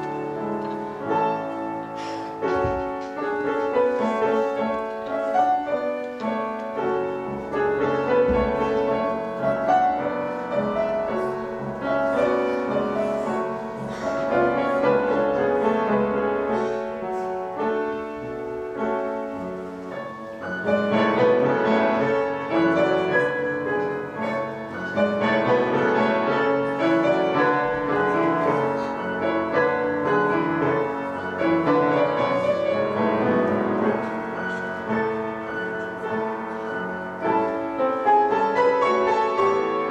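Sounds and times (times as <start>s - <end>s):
grand piano piece: 0.0s - 39.9s.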